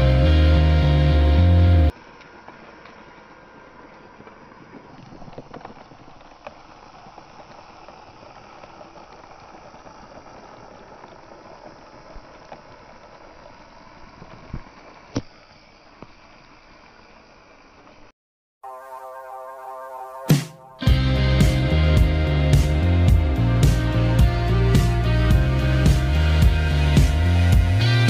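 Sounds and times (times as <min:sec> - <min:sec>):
plastic wheels rolling on concrete: 0:01.9 - 0:18.1
small motor whirring: 0:01.9 - 0:18.1.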